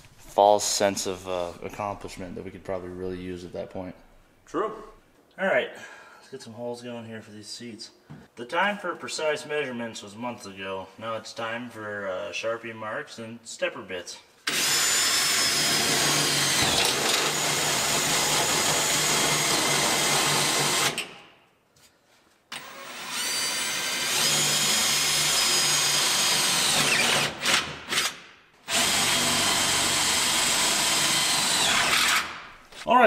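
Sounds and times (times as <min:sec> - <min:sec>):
cordless drill boring sheet metal: 0:14.5 - 0:21.0, 0:22.6 - 0:28.1, 0:28.7 - 0:32.4.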